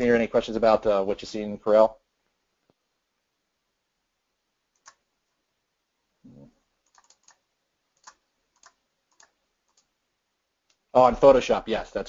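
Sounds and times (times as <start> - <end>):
keyboard and mouse clicks: 4.7 - 5.0, 6.3 - 7.4, 8.0 - 9.9.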